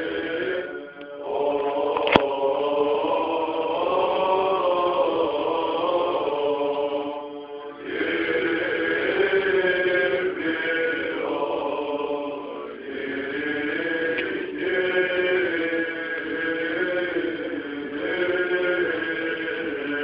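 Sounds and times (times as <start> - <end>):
men chanting: 0.0 - 20.0
sharp click: 2.0 - 2.3.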